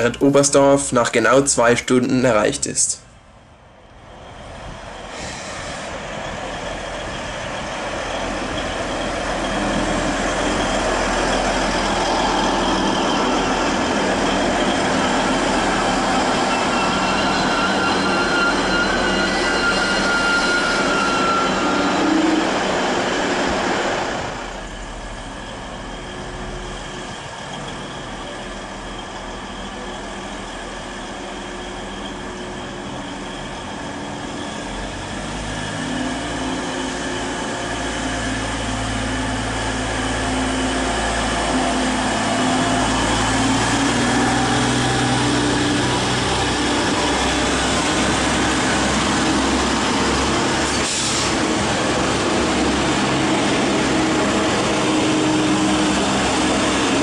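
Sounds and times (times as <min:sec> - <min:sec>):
train rumbling: 0:00.0 - 0:57.0
high squeal of wheels or brakes: 0:05.0 - 0:23.3, 0:24.7 - 0:38.4, 0:40.2 - 0:52.2.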